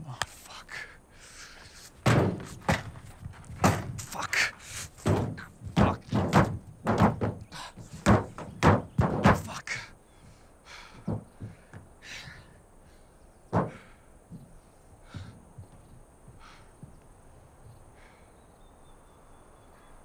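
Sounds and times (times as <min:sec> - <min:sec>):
feet pounding on metal car hood: 0:02.0 - 0:04.1, 0:04.9 - 0:09.6, 0:11.0 - 0:11.9, 0:13.5 - 0:17.0.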